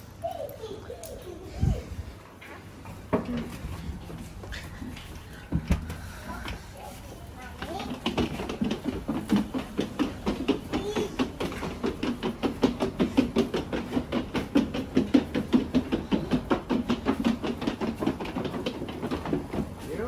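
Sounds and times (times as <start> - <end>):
suitcase wheels on wooden boards: 7.3 - 20.0.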